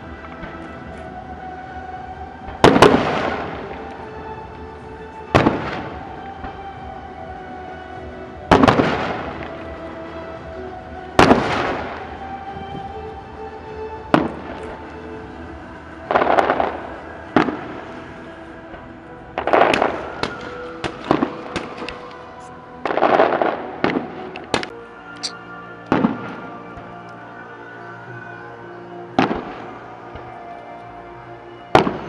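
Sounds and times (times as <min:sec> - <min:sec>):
music playing: 0:00.0 - 0:32.0
firework crackle: 0:02.5 - 0:04.0, 0:16.0 - 0:22.2.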